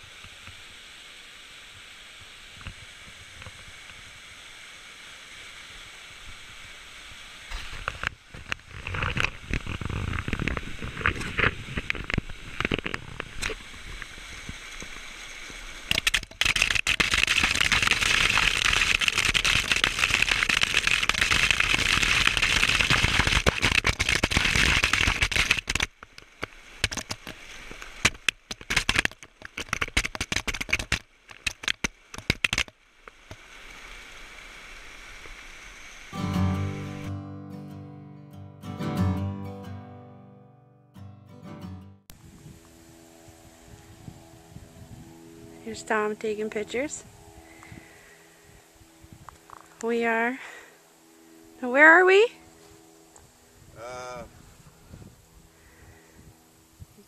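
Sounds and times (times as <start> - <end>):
waterfall water splashing on microphone: 0.0 - 36.2.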